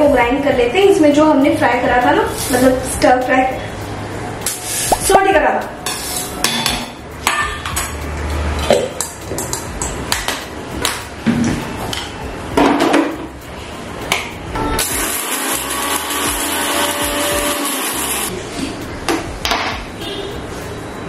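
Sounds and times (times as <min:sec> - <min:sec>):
spice grinder running: 0:14.8 - 0:18.3.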